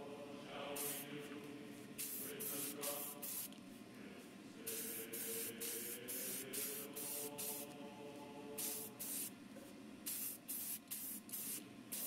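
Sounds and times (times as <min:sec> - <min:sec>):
steady hum: 0:00.0 - 0:12.0
spray paint hissing bursts: 0:00.8 - 0:01.1, 0:02.0 - 0:03.6, 0:04.7 - 0:07.7, 0:08.6 - 0:09.3, 0:10.1 - 0:12.0.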